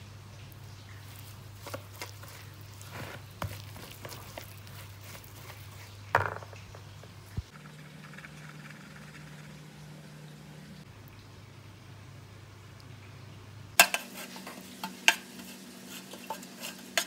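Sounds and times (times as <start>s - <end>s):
whisk stirring batter: 1.1s - 6.0s, 13.8s - 17.0s
low hum: 7.2s - 11.4s.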